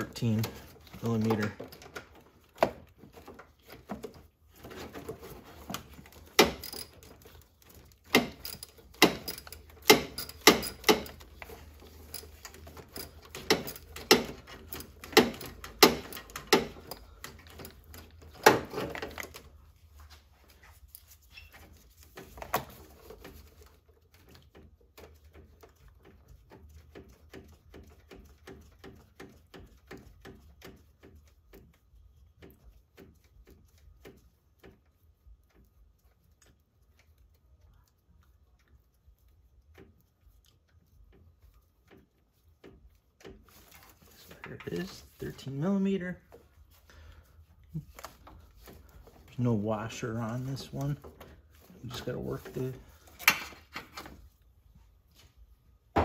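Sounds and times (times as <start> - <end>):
wrench clinking on metal: 6.4 - 7.1.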